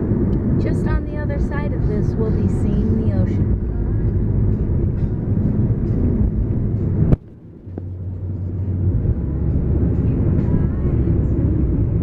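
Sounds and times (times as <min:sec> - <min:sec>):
car cabin road noise: 0:00.0 - 0:12.0.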